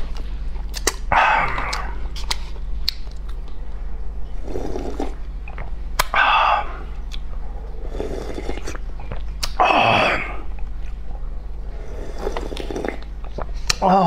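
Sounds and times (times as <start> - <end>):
wet mouth clicks: 0.7 - 3.6, 5.5 - 6.2, 7.0 - 7.3, 8.4 - 9.6
person slurping noodle broth: 4.4 - 5.2, 7.8 - 8.8, 11.8 - 13.1.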